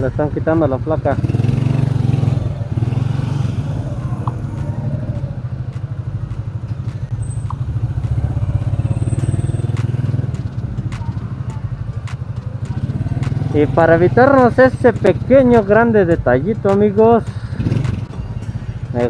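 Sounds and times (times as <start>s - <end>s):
motorcycle engine idling: 0.0s - 19.0s.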